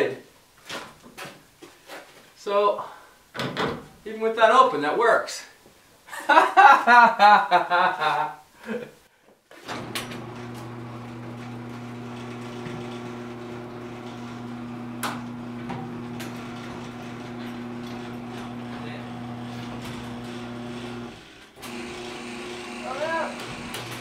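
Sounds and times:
garage door opener motor: 9.6 - 24.0.

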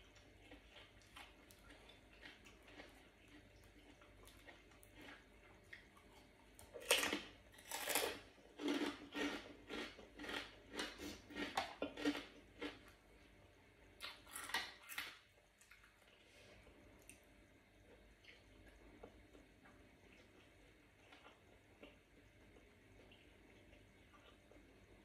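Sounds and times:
chewing and mouth noises: 0.0 - 13.0.

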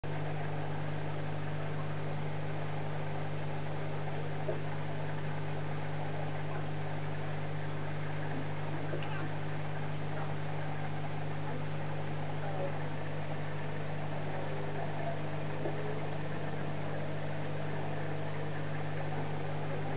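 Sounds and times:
aquarium air pump humming: 0.0 - 19.9.

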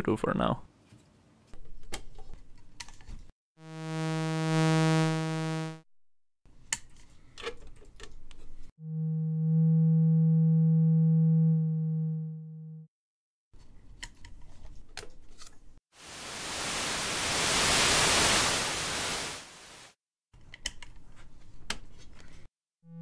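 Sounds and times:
low synthesizer tones: 8.8 - 12.9.

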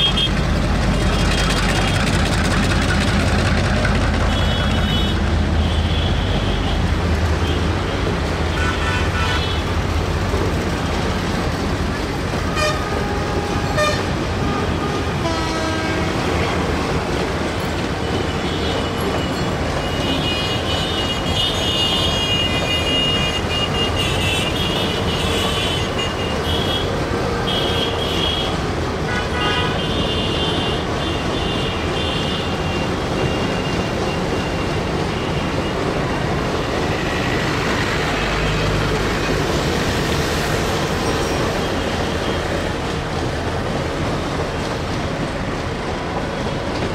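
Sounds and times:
freight train rolling past: 0.0 - 46.9
road traffic rumble: 0.0 - 46.9
vehicle horns honking: 12.6 - 16.2, 20.0 - 32.6.

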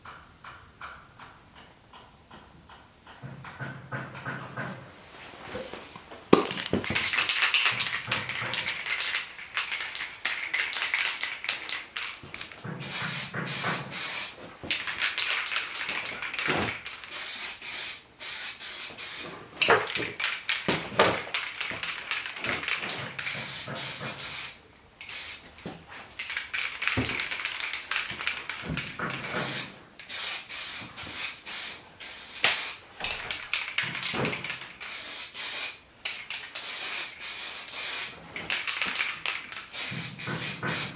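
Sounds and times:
aerosol spray paint hissing: 12.4 - 14.4, 15.0 - 20.3, 21.8 - 25.4, 29.3 - 35.8, 36.4 - 40.9.

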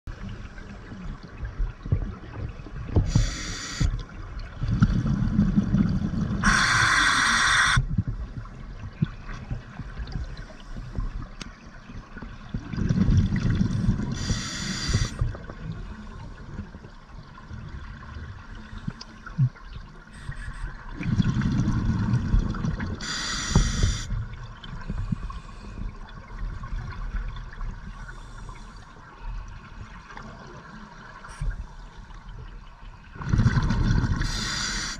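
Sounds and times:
regulator inhalation hiss: 3.1 - 3.9, 6.4 - 7.8, 14.2 - 15.2, 23.0 - 24.1, 34.2 - 34.9
exhaled bubbles burbling: 4.6 - 7.8, 21.0 - 23.0, 33.2 - 34.6.

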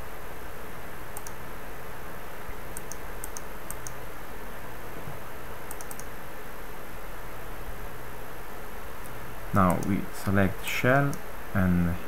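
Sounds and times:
computer mouse clicking: 1.2 - 1.4, 2.8 - 4.0, 5.7 - 6.1, 9.6 - 10.0
steady hiss: 4.5 - 12.0.

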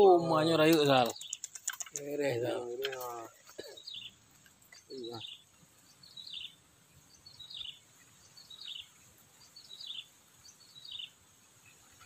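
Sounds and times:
faint high hiss: 0.0 - 12.0.

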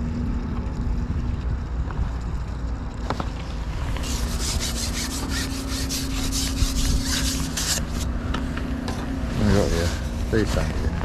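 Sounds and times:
fishing pole sliding through hands: 3.9 - 8.1.

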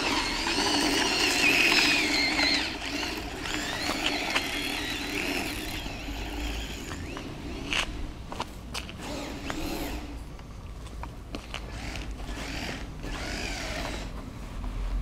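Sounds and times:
toy car electric motor whining: 0.0 - 7.9, 9.0 - 10.2, 11.6 - 14.1.

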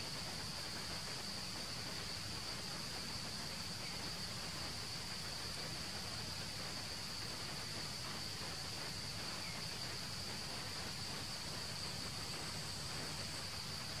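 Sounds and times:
even hiss: 0.0 - 14.0
insects droning: 0.0 - 14.0.

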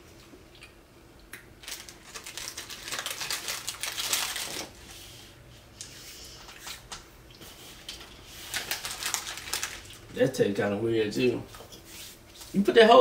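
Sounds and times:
snack wrapper crackling: 1.6 - 4.8, 8.5 - 10.1.

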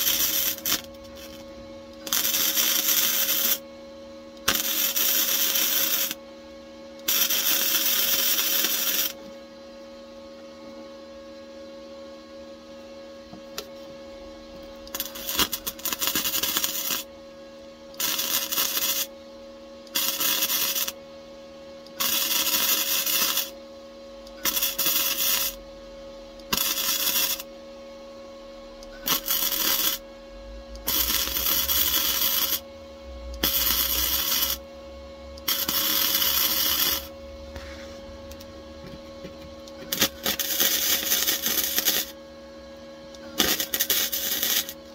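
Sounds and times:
welder arc crackling: 0.0 - 1.4, 2.0 - 3.6, 4.4 - 6.2, 7.0 - 9.2, 14.6 - 17.1, 18.0 - 19.1, 19.9 - 21.0, 21.9 - 23.6, 24.3 - 25.6, 26.4 - 27.5, 28.8 - 30.0, 30.7 - 32.7, 33.3 - 34.6, 35.4 - 37.1, 38.3 - 42.2, 43.2 - 44.8
steady hum: 0.0 - 44.9.

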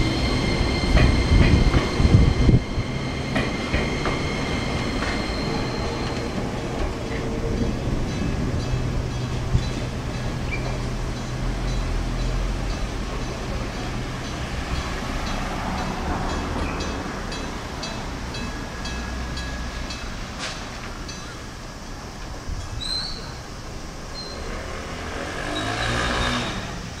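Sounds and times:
electric train moving off: 0.0 - 27.0
cars driving past: 24.1 - 27.0.

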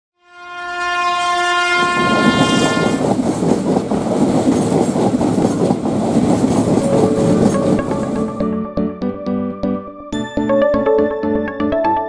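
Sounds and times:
train horn: 0.2 - 3.0
train wheels clattering over rails: 2.2 - 8.2.

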